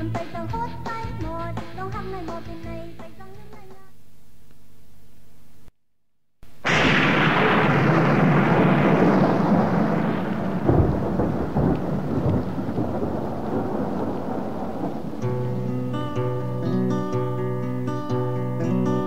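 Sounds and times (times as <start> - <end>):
rain hiss: 6.5 - 17.0
thunderclap rumbling: 6.6 - 16.4
plucked guitar notes: 15.2 - 19.0.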